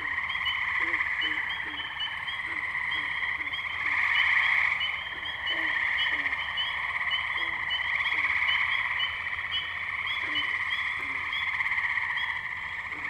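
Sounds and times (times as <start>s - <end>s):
frog rising peeps: 0.0s - 13.0s
lower short frog calls: 0.0s - 13.0s
tree frogs trilling: 0.0s - 13.0s.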